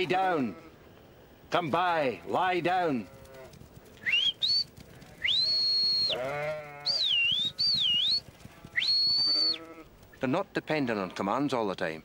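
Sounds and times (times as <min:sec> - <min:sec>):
shepherd's whistles: 0:04.0 - 0:06.2, 0:06.8 - 0:09.6
sheep bleating: 0:05.0 - 0:07.8, 0:08.4 - 0:09.9.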